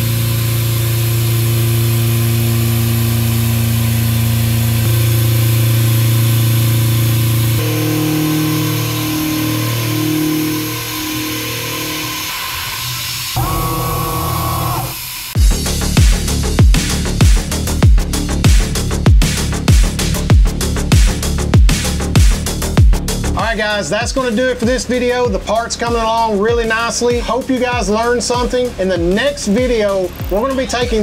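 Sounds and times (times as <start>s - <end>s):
milling machine cutting metal: 0.0s - 21.4s
high steady whine: 0.0s - 24.7s.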